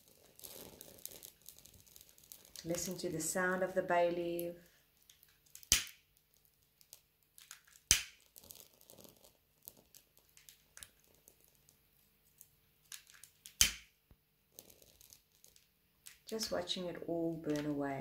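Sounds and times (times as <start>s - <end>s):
bay leaf crackling as it burns: 0.0s - 16.5s
sharp cracks: 5.2s - 6.2s, 7.4s - 8.8s, 12.8s - 14.0s.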